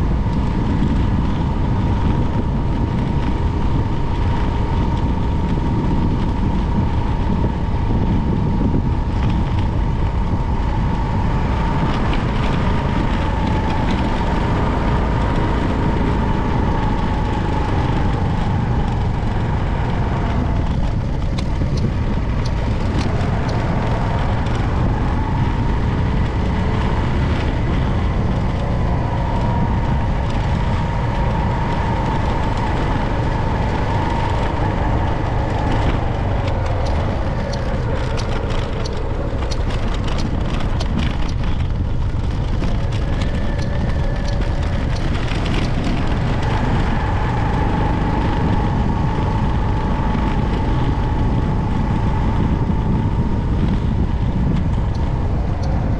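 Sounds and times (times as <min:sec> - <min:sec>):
faint whine: 0:00.0 - 0:55.9
vehicle rumbling: 0:00.0 - 0:55.9.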